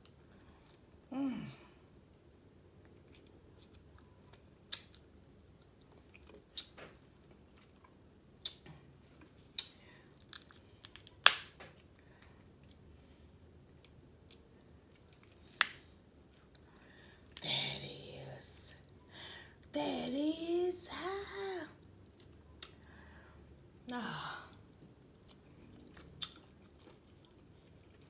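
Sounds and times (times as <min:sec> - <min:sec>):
soft chewing: 0:00.0 - 0:01.1, 0:01.8 - 0:17.4, 0:21.8 - 0:23.6, 0:24.5 - 0:28.0
crab shells cracking: 0:09.5 - 0:11.7, 0:13.8 - 0:16.0.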